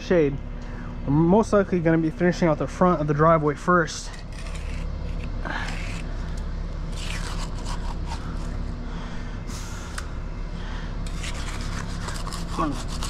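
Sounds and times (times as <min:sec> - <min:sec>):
low mechanical hum: 0:00.0 - 0:13.0
trowel scraping wet concrete: 0:04.0 - 0:06.1, 0:06.9 - 0:08.6, 0:11.1 - 0:13.0.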